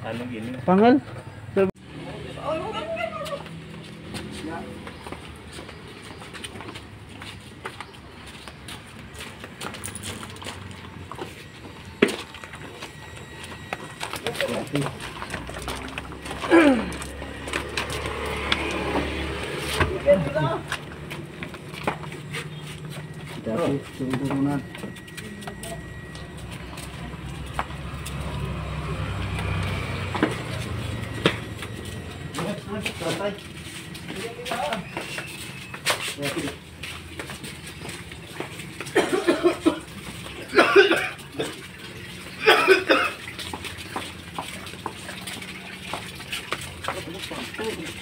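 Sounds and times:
engine humming: 0:00.0 - 0:48.0
man coughing: 0:16.4 - 0:17.0, 0:38.8 - 0:41.6, 0:42.4 - 0:43.2.

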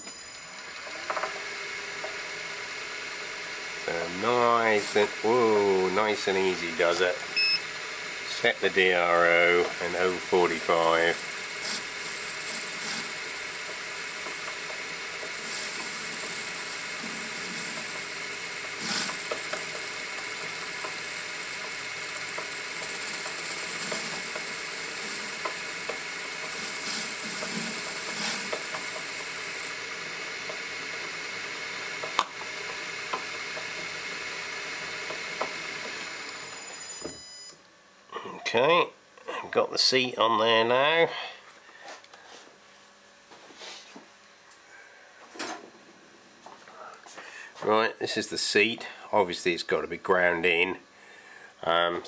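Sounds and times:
lathe gear whine: 0:00.0 - 0:37.6
cutter rasping on metal: 0:10.6 - 0:31.1.

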